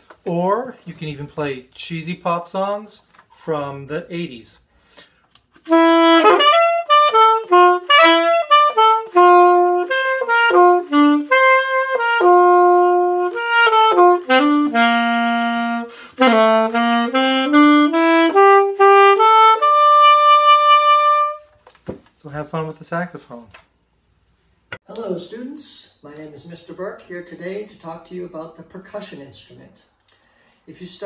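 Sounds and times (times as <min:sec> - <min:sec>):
alto saxophone melody: 0:05.6 - 0:21.5.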